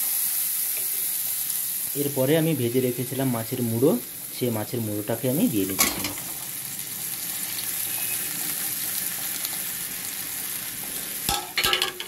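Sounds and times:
fish sizzling in oil: 0.0s - 12.0s
metal spatula knocking on pan: 11.3s - 12.0s.

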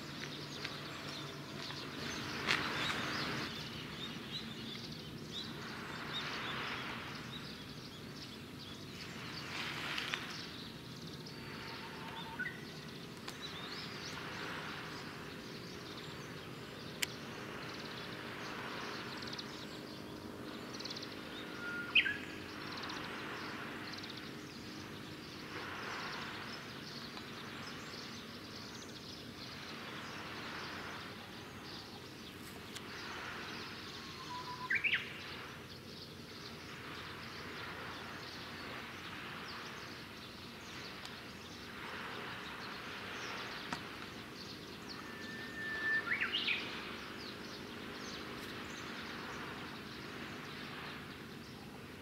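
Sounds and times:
shoreline hiss: 0.0s - 52.0s
bird whistled calls: 11.7s - 12.6s, 21.5s - 22.3s, 34.0s - 35.1s, 44.8s - 46.8s.

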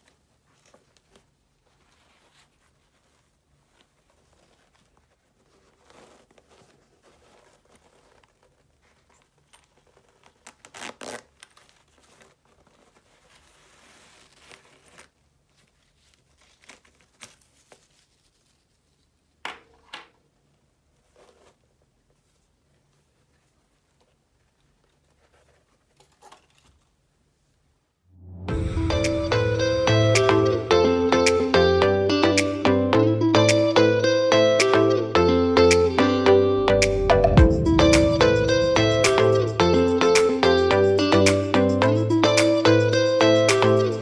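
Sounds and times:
sneaker rustling in hands: 0.0s - 19.2s.

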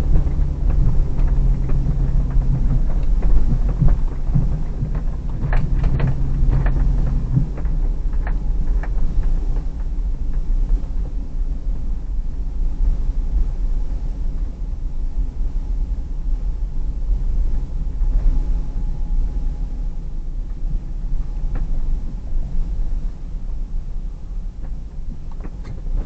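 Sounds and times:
small knocks and clicks: 0.0s - 9.7s
car engine running low: 0.0s - 26.0s.

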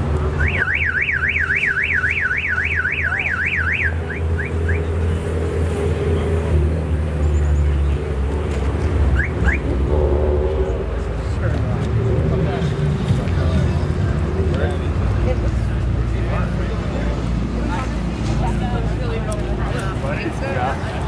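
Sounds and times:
car alarm chirps: 0.4s - 4.9s, 9.2s - 9.7s
car alarm siren warbling: 0.4s - 4.9s.

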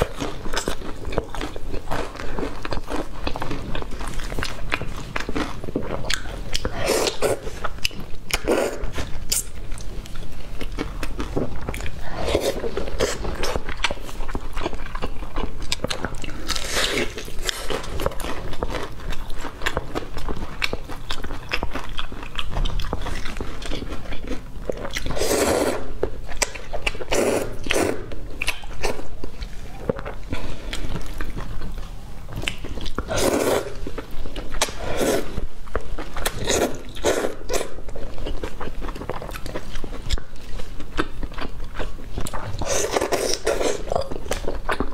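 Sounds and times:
crunching and chewing fried chicken: 0.0s - 44.9s
loud slurps of noodles: 34.8s - 35.4s.

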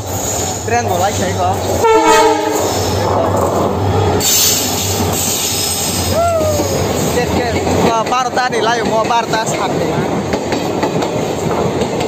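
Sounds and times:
train wheels rumbling on rails: 0.0s - 12.0s
locomotive engine hum: 1.4s - 7.9s
train horn blast: 1.8s - 2.8s.

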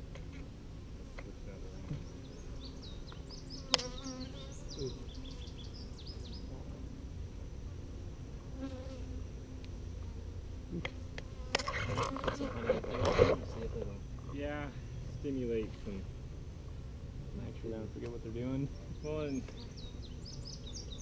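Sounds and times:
bees buzzing: 0.0s - 14.2s.

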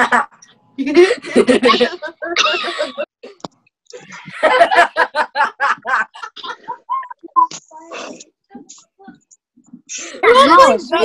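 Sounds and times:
teenage boys laughing: 0.0s - 3.1s, 4.0s - 7.2s.

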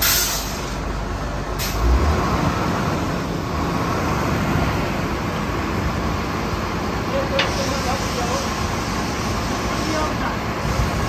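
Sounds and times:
short hiss: 0.0s - 0.8s
drilling rig engine running: 0.0s - 11.0s.

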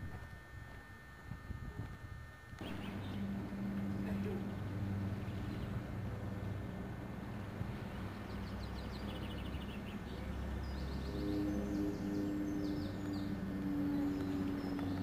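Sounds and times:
low steady rumble: 0.0s - 15.0s
steady humming tone: 0.0s - 15.0s
small birds chirping: 2.6s - 6.6s, 7.2s - 15.0s.

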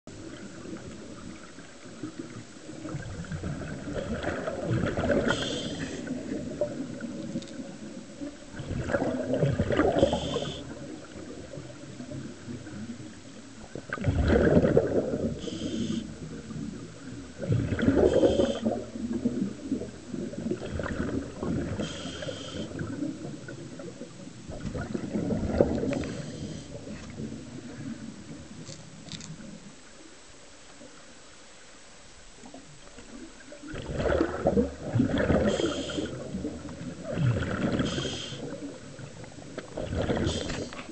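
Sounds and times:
bubbles rushing and gurgling: 0.1s - 29.6s, 32.4s - 40.9s
regulator hiss: 5.2s - 6.3s, 10.0s - 10.8s, 15.4s - 16.3s, 18.0s - 18.8s, 21.8s - 22.9s, 26.0s - 26.9s, 35.4s - 36.3s, 37.8s - 38.6s, 40.2s - 40.9s.

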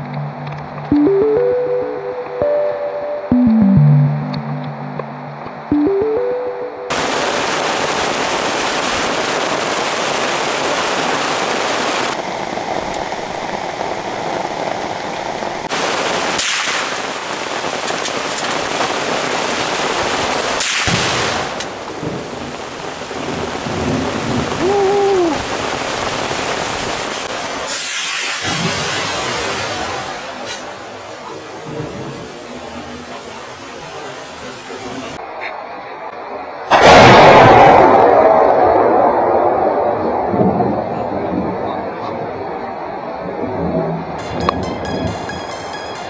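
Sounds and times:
heavy rain: 0.0s - 2.8s, 6.9s - 45.4s
sharp rifle shots: 16.4s - 17.0s, 20.6s - 21.6s.

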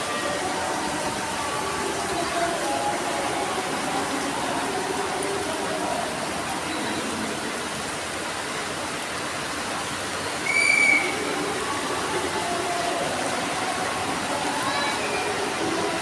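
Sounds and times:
rain falling on water: 0.0s - 16.0s.

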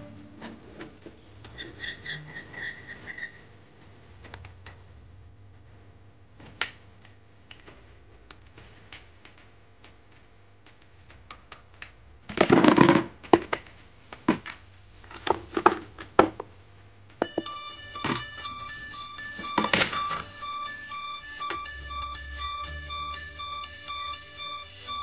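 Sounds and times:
music: 0.0s - 0.9s, 17.2s - 25.0s.

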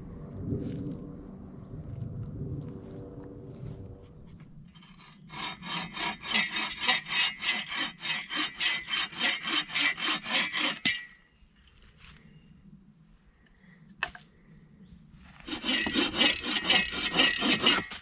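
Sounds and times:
bow saw cutting wooden branch: 4.7s - 11.2s, 15.3s - 18.0s.

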